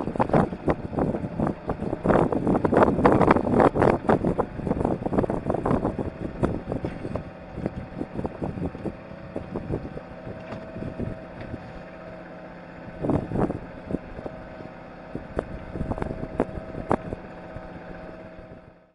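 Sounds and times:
engine hum: 0.0s - 18.9s
gear knocking and clattering on deck: 6.4s - 8.4s.

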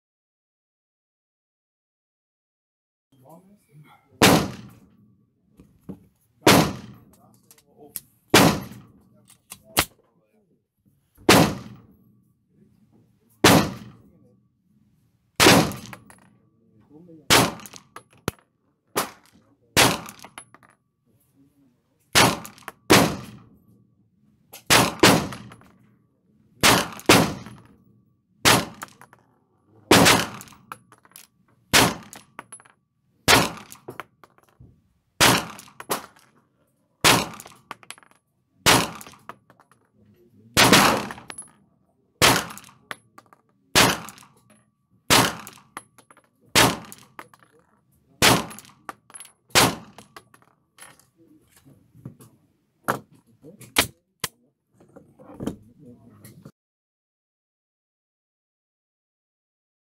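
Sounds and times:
faint gunshots: 4.2s - 4.8s, 6.5s - 7.0s, 8.3s - 8.9s, 11.3s - 11.8s, 13.4s - 14.0s, 15.4s - 16.0s, 17.3s - 17.8s, 19.8s - 20.2s, 22.2s - 23.4s, 24.7s - 25.5s, 26.6s - 27.6s, 28.4s - 29.0s, 29.9s - 30.6s, 37.0s - 37.5s, 40.6s - 41.3s, 42.2s - 42.8s, 43.7s - 44.2s, 45.1s - 45.6s, 46.6s - 47.1s, 48.2s - 48.7s, 49.5s - 50.0s.

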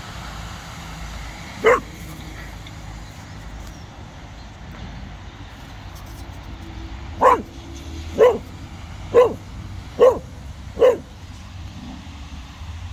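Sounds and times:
dog barking: 1.6s - 2.0s, 7.2s - 11.2s.

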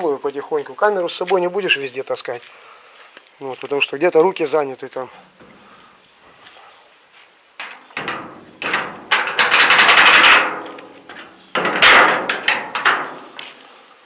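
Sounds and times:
metal knocks: 5.3s - 5.8s, 7.6s - 13.5s
loud metal clang: 7.6s - 13.4s
steel door rattling clatter: 7.6s - 13.4s.

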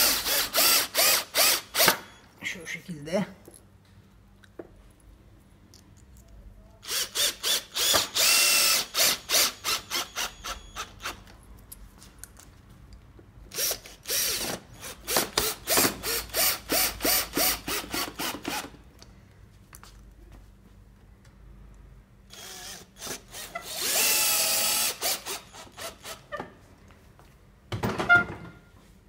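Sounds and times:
drill driving screws into wood: 0.0s - 2.1s, 6.8s - 11.2s, 13.5s - 18.8s, 22.3s - 26.3s.

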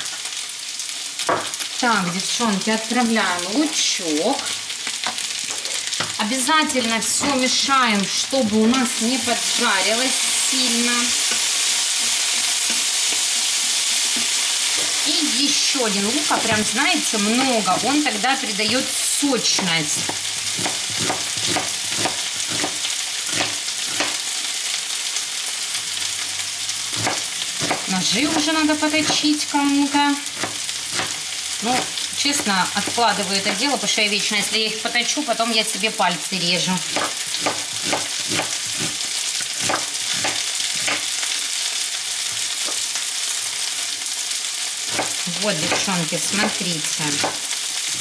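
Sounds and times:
food sizzling in a pan: 0.0s - 48.0s
knife chopping on plastic board: 19.6s - 24.2s, 27.0s - 29.3s, 30.4s - 33.0s, 36.9s - 39.0s, 39.6s - 41.1s, 44.9s - 46.6s.

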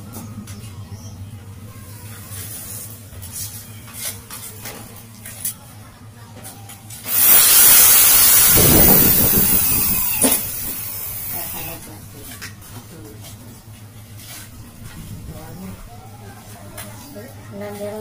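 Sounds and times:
loud steady hiss: 7.0s - 11.8s.

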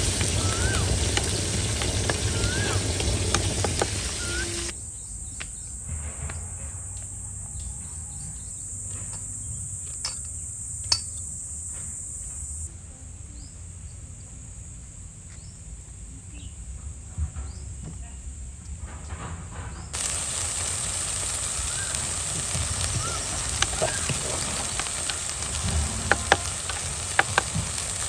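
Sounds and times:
high-pitched insect chorus: 20.0s - 28.0s.

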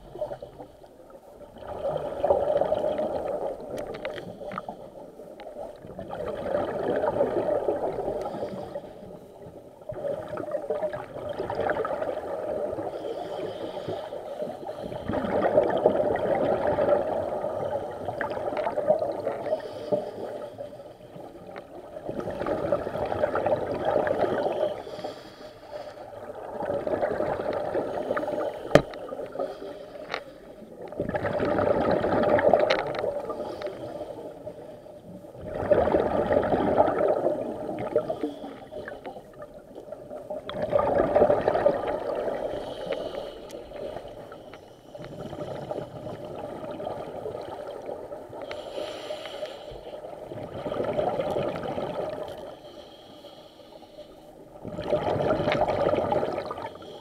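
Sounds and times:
gurgling exhaled bubbles: 1.4s - 4.7s, 5.6s - 8.8s, 9.8s - 13.2s, 14.7s - 19.8s, 21.3s - 24.9s, 26.2s - 29.5s, 30.7s - 33.6s, 35.3s - 42.8s, 45.0s - 48.4s, 50.1s - 52.5s, 54.6s - 56.9s
diver breathing through regulator: 12.9s - 15.4s, 24.3s - 26.2s, 37.8s - 39.3s, 42.3s - 46.2s, 48.4s - 50.1s, 52.4s - 54.4s.

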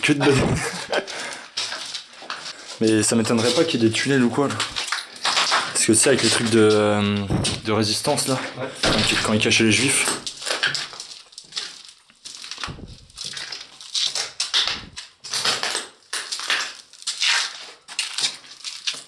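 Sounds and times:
footsteps crunching over debris: 0.6s - 7.7s, 8.9s - 19.0s
dull thumps: 7.2s - 7.8s.

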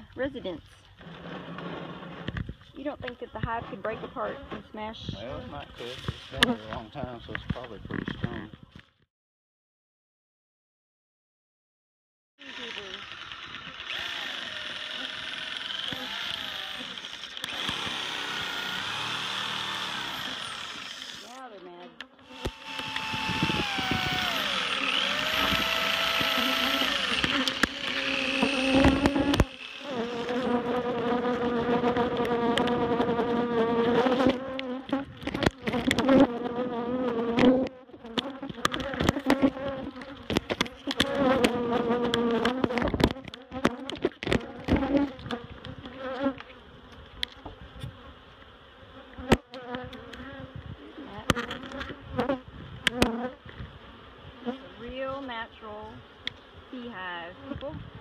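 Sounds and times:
honeybees buzzing: 12.4s - 58.0s
bees thudding into phone: 26.4s - 33.1s.

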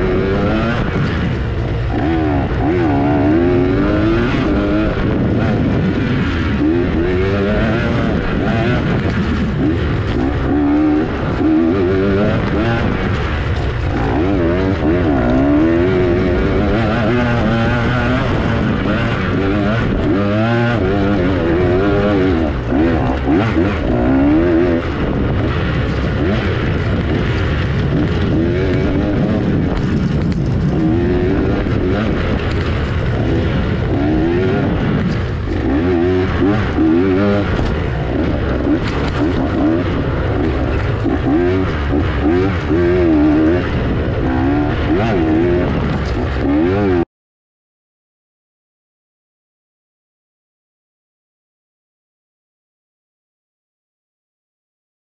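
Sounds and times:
dirt bike engine revving: 0.0s - 47.1s.

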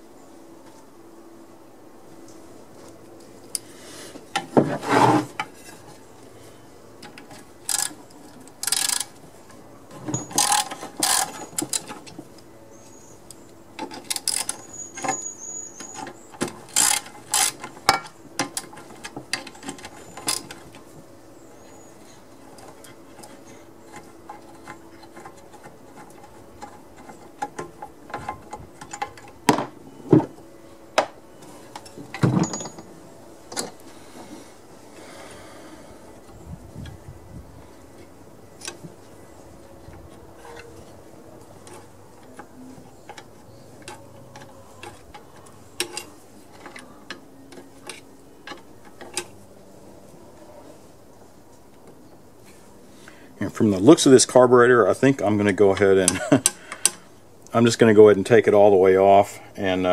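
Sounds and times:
tools and metal parts rattling: 7.0s - 9.2s, 9.9s - 12.2s, 13.8s - 20.9s, 22.4s - 29.7s, 31.7s - 33.8s, 41.6s - 49.4s.

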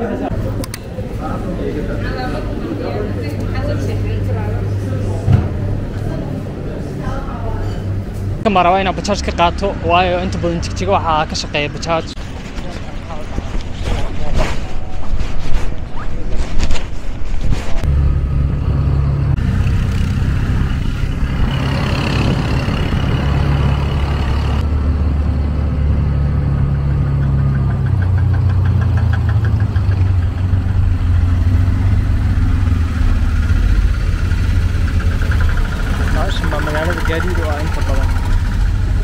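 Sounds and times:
auto rickshaw engine running: 17.9s - 39.0s.

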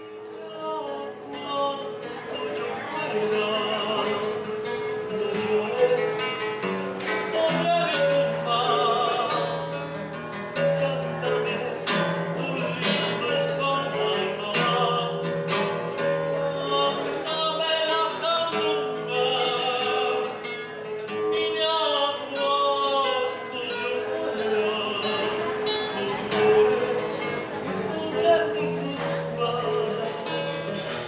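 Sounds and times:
acoustic guitar: 0.0s - 31.0s
man singing folk song: 0.0s - 31.0s.

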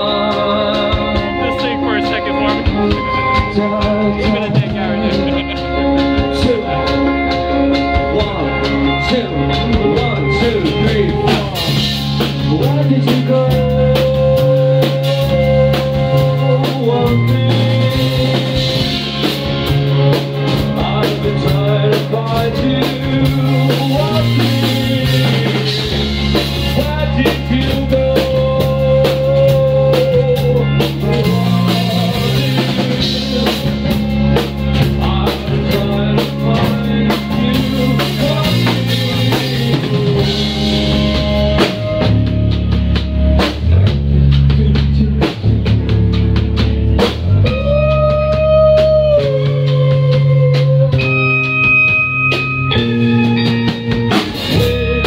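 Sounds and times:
man singing long held notes: 0.0s - 19.1s, 20.6s - 26.1s, 26.7s - 34.1s, 34.8s - 42.1s, 47.4s - 51.3s, 54.5s - 55.0s
live band playing: 0.0s - 55.0s.

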